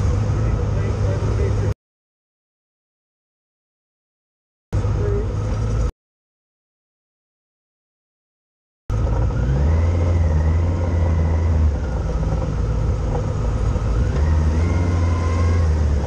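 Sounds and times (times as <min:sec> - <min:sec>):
road and wind rumble: 0:00.0 - 0:01.8, 0:04.7 - 0:05.9, 0:08.9 - 0:16.0
vehicle engine accelerating: 0:00.0 - 0:01.8, 0:08.9 - 0:16.0.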